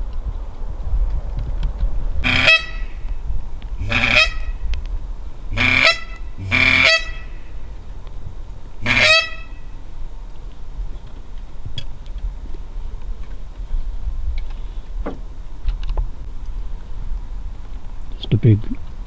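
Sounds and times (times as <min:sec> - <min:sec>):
low wind rumble: 0:00.0 - 0:19.0
duck call quacks: 0:02.2 - 0:03.0, 0:03.8 - 0:04.6, 0:05.5 - 0:07.5, 0:08.8 - 0:09.6.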